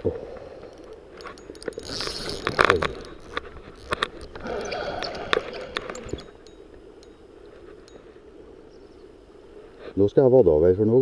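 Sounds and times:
fishing reel clicking and rattling: 0.7s - 7.2s.

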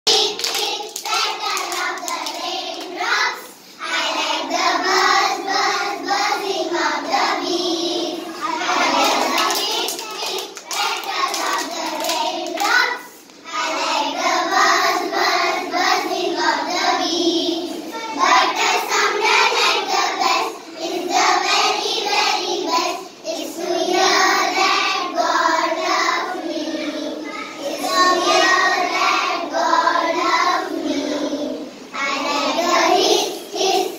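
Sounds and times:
children singing in unison: 0.1s - 33.9s
hand claps: 0.3s - 2.9s, 9.0s - 13.4s.

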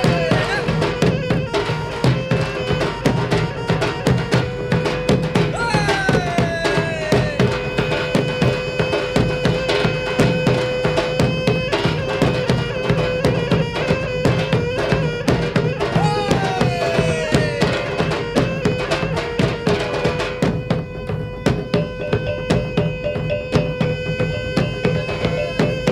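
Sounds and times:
drums: 0.0s - 25.9s
reedy wind instrument melody: 0.0s - 25.9s.

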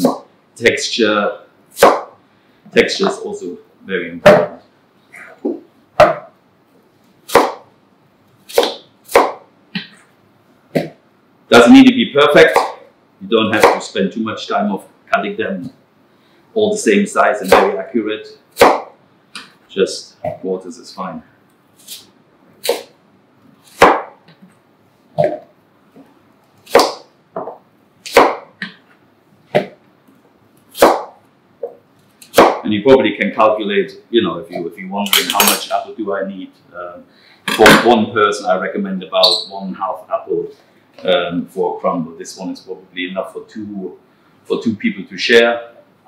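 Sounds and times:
knife chopping on cutting board: 1.8s - 2.1s, 6.0s - 6.3s, 7.3s - 7.6s, 8.5s - 9.4s, 12.5s - 12.8s, 13.6s - 13.8s, 17.5s - 17.7s, 18.6s - 18.9s, 23.8s - 24.1s, 26.7s - 27.5s, 28.1s - 28.8s, 30.8s - 31.1s, 32.3s - 32.6s.

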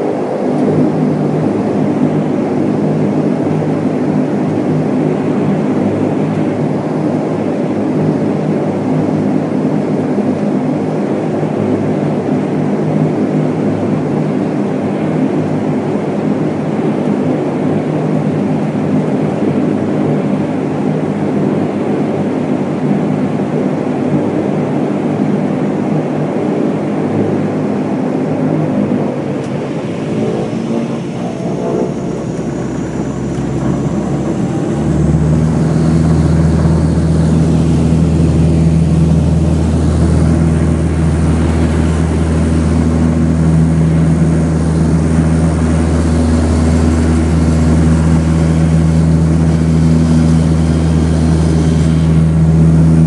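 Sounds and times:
turboprop engine drone: 0.0s - 53.0s
tyres rumbling on runway: 27.0s - 53.0s.

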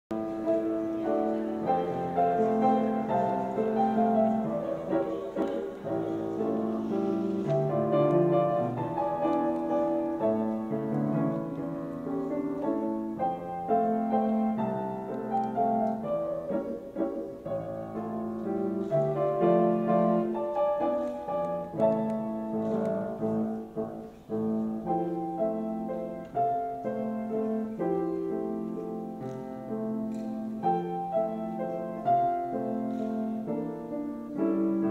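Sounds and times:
slow classical piano music: 0.1s - 34.9s.

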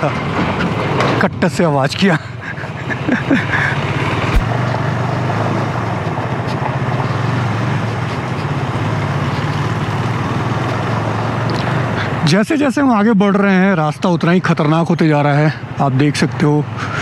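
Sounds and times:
motorcycle engine running: 2.5s - 12.3s
wind and tyre noise on gravel: 4.0s - 11.5s.

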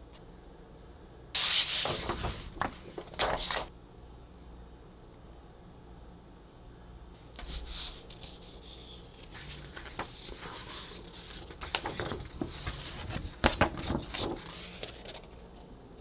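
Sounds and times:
paper rustling and crinkling: 1.4s - 3.7s, 7.4s - 15.6s.

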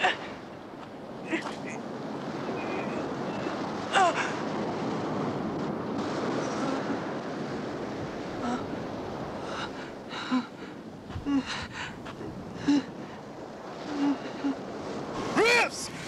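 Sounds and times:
surf rushing: 0.0s - 16.0s.

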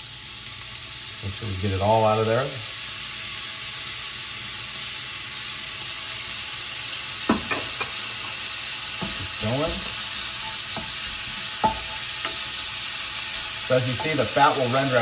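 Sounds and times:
meat sizzling in a pan: 0.0s - 15.0s.

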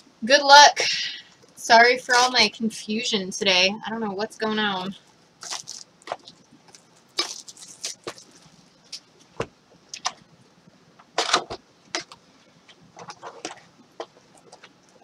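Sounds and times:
plastic wrap crinkling and tearing: 5.4s - 9.2s.

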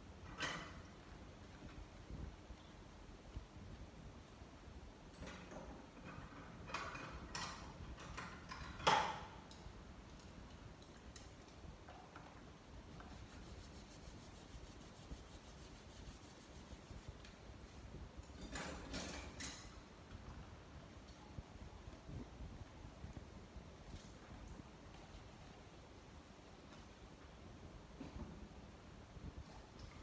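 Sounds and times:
plastic basin and utensils clatter: 5.2s - 9.5s, 18.2s - 19.8s.

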